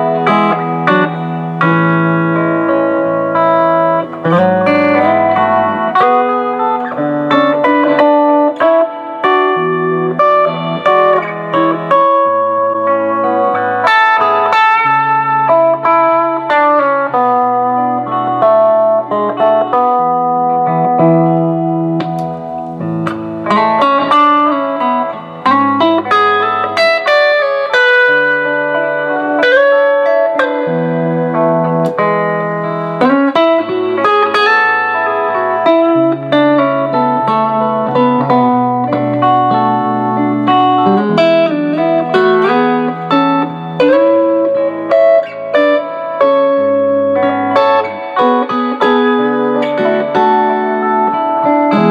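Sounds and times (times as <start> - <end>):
clean electric guitar playing: 0.0 - 51.9
looped backing guitar: 0.0 - 51.9.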